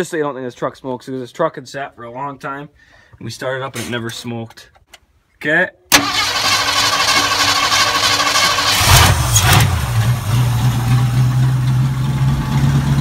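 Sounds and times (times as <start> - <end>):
starter motor whine: 5.9 - 10.0
engine idling: 6.0 - 13.0.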